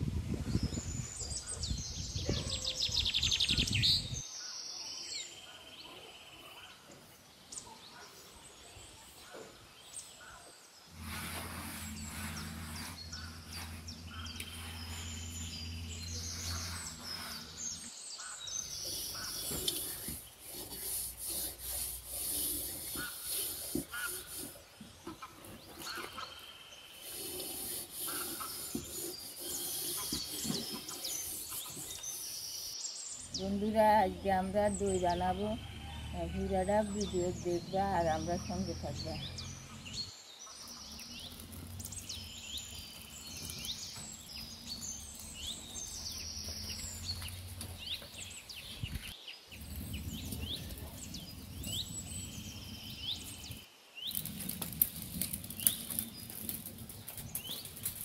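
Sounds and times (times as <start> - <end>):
birds chirping: 0.2 - 58.0
steady low hum: 10.9 - 18.0
loud low rumble: 11.0 - 17.8.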